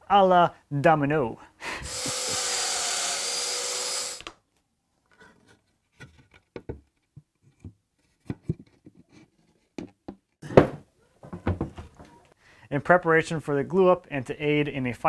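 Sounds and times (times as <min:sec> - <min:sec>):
joiner motor whine: 0:01.8 - 0:04.4
wooden knocks: 0:09.8 - 0:12.1.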